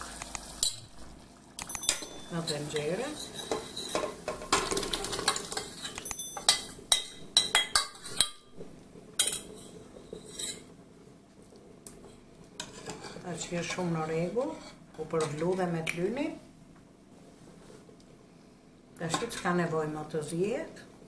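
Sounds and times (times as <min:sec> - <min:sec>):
ladle clinking against steel pots: 0:01.6 - 0:08.6.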